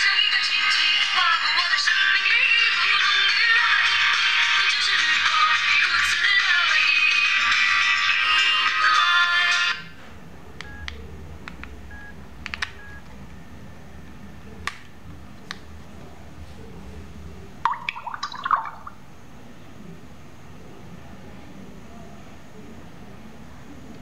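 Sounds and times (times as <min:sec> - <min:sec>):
music: 0:00.0 - 0:09.9.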